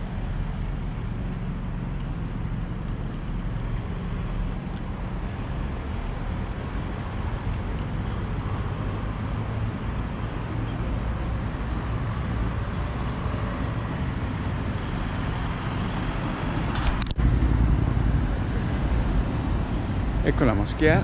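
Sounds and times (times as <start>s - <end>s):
road traffic rumble: 0.0s - 21.0s
sharp click: 16.7s - 17.2s.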